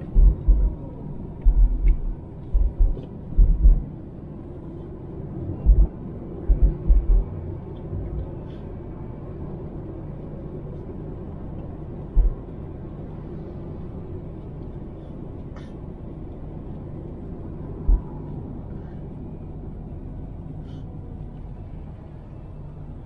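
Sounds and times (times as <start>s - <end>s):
car road noise rumble: 0.0s - 23.0s
low thumps: 0.1s - 0.8s, 1.4s - 3.9s, 5.6s - 7.3s, 12.2s - 12.4s.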